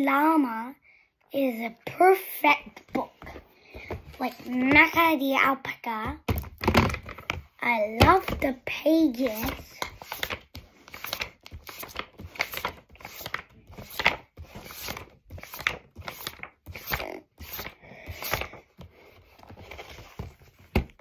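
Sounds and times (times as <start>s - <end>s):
book pages turning: 6.4s - 21.0s.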